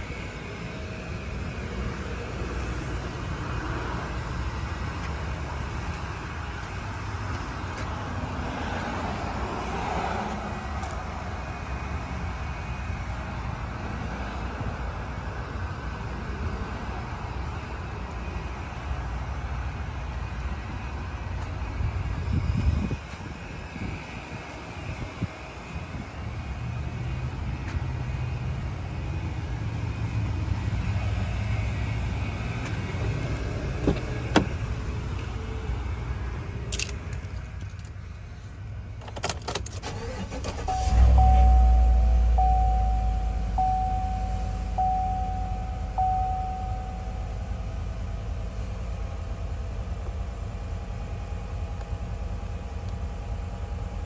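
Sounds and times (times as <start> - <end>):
outdoor background rumble: 0.0 - 54.0
engine cranking and idling: 38.9 - 54.0
dashboard chime pinging: 40.7 - 47.5.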